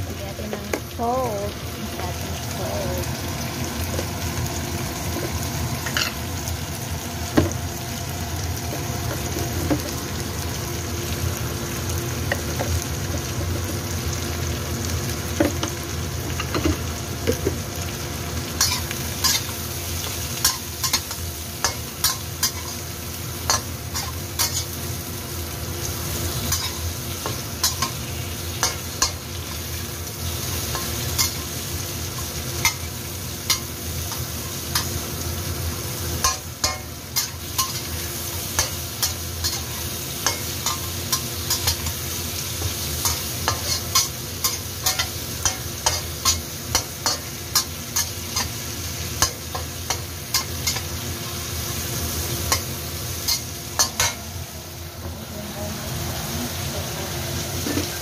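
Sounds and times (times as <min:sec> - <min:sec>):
shrimp sizzling in oil: 0:00.0 - 0:58.0
metal utensil scraping a wok: 0:26.2 - 0:31.5, 0:36.2 - 0:54.3, 0:57.4 - 0:58.0.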